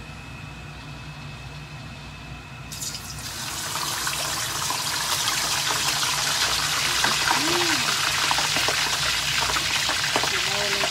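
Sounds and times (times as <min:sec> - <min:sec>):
steady low hum: 0:00.0 - 0:03.7
oil sizzling in a wok: 0:02.7 - 0:10.9.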